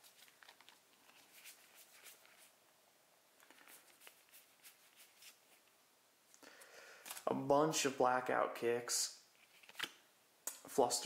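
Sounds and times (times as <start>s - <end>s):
trading cards swishing: 0.0s - 2.5s, 3.4s - 5.4s.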